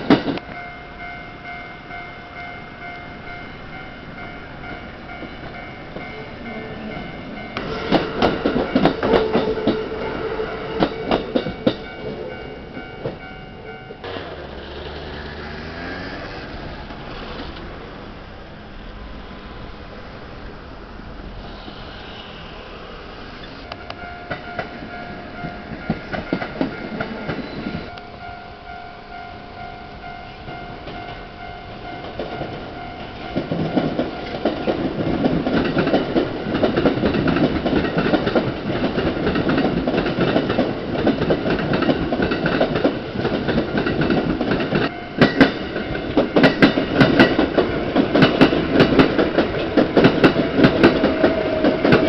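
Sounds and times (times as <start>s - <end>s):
trains rumbling past: 0.0s - 52.0s
level crossing alarm bell: 0.4s - 14.1s, 23.7s - 34.8s
train wheels clacking over joints: 6.9s - 10.0s, 10.6s - 13.3s, 23.9s - 27.9s, 32.0s - 52.0s
train motor whine: 7.6s - 11.8s, 14.0s - 18.2s.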